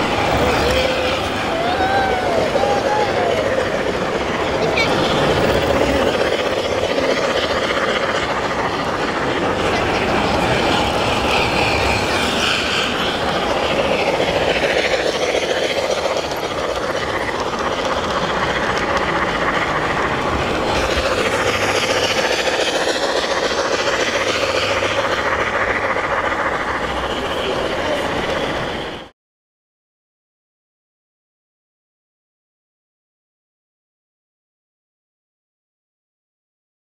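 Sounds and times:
model train wheels rattling on rail: 0:00.0 - 0:29.1.

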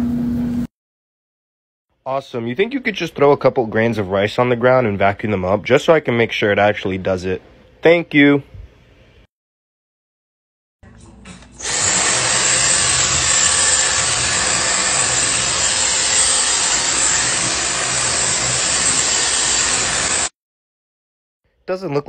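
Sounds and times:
vacuum cleaner on wooden floor: 0:11.6 - 0:20.3.

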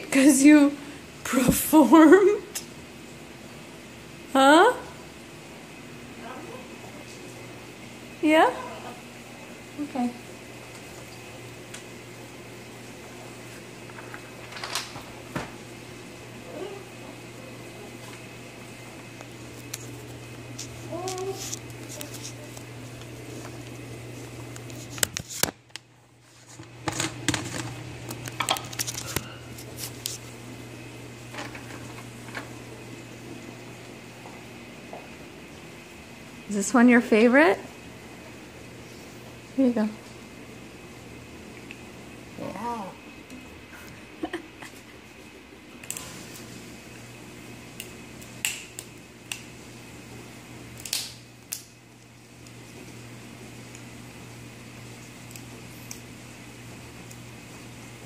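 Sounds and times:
steady low hum: 0:00.0 - 0:58.0
parrot cracking a nut with beak: 0:50.8 - 0:51.7.

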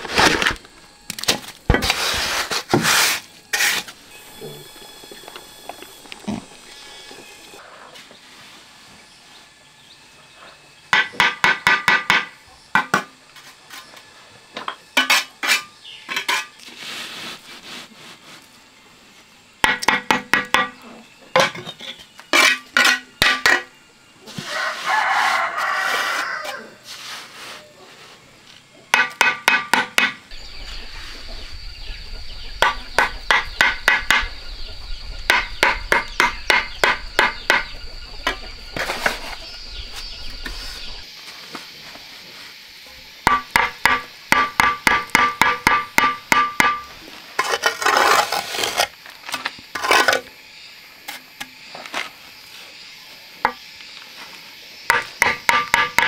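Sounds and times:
steady hum: 0:00.0 - 0:16.5, 0:28.2 - 0:56.0
trowel tapping bricks: 0:21.4 - 0:23.7, 0:43.3 - 0:48.9, 0:54.9 - 0:56.0
rooster crowing: 0:24.4 - 0:26.9.

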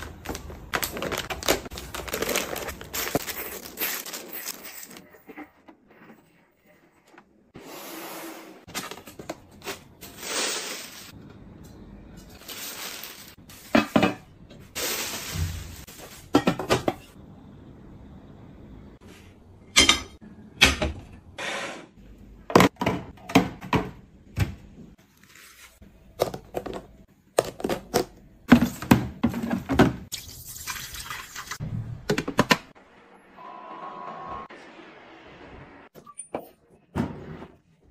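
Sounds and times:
plastic rustling: 0:00.0 - 0:05.1, 0:12.3 - 0:13.8, 0:14.7 - 0:16.4
objects knocking and clattering: 0:13.0 - 0:14.6, 0:15.2 - 0:17.2.

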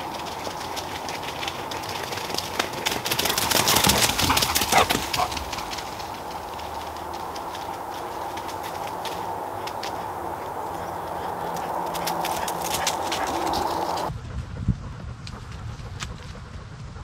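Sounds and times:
paws running through dry leaves: 0:00.0 - 0:14.2
outdoor background noise: 0:00.0 - 0:17.0.

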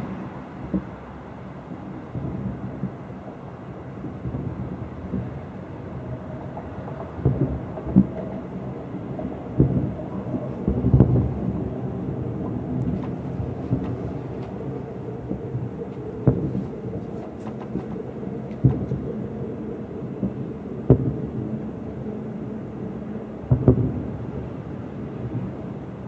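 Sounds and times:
distant fireworks booming: 0:04.0 - 0:22.3, 0:22.9 - 0:26.0
low rumble: 0:06.1 - 0:24.4.

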